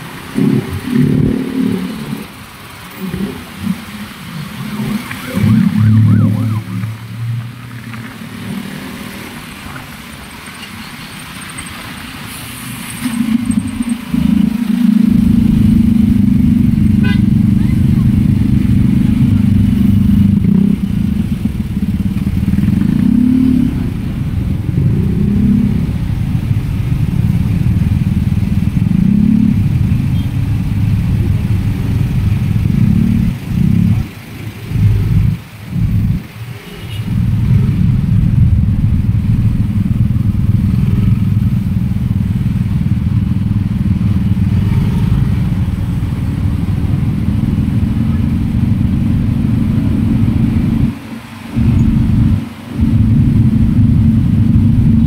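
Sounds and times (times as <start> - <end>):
surrounding traffic: 0.0 - 55.0
motor scooter engine rumble: 13.2 - 55.0.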